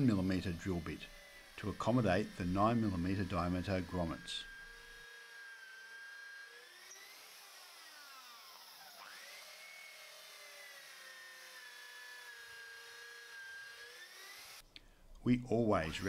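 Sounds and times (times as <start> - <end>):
electric drill boring into wood: 0.0 - 14.6, 15.7 - 16.0.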